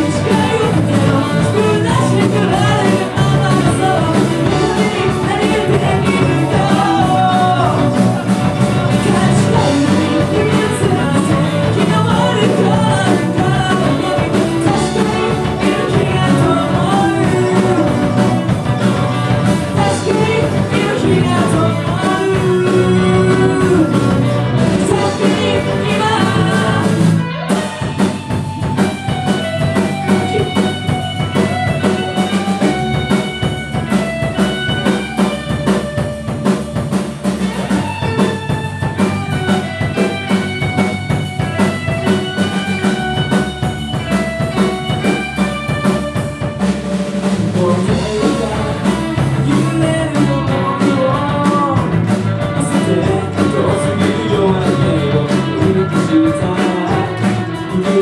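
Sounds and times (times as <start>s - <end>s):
man singing lead: 0.0s - 35.3s, 47.2s - 58.0s
live rock band playing: 0.0s - 58.0s.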